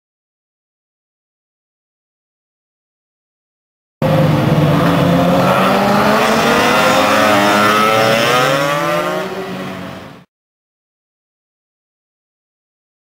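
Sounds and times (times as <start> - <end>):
scooter engines accelerating: 4.0 - 10.3.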